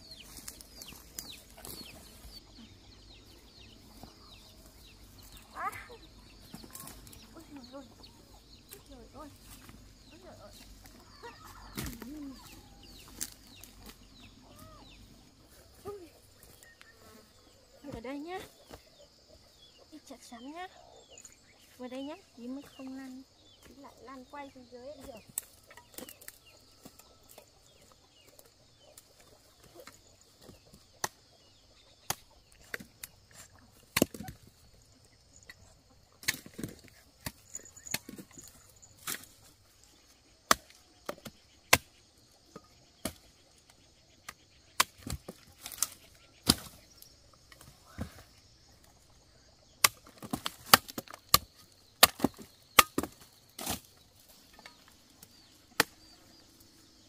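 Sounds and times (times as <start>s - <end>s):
machete chopping: 40.5s - 42.0s, 44.7s - 46.8s, 49.8s - 53.9s, 55.7s - 56.2s.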